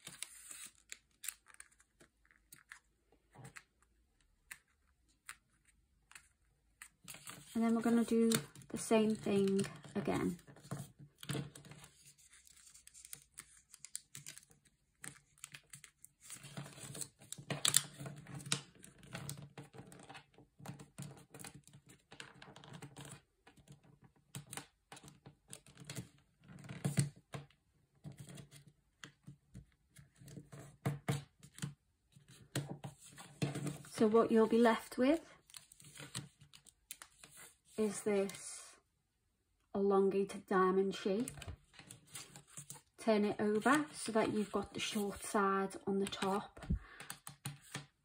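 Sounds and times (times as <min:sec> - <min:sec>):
paper rustling and crinkling: 0:00.0 - 0:03.6, 0:05.3 - 0:20.1, 0:35.4 - 0:37.8, 0:41.2 - 0:42.9
fingers tapping paper folds: 0:04.4 - 0:22.2, 0:46.0 - 0:47.9.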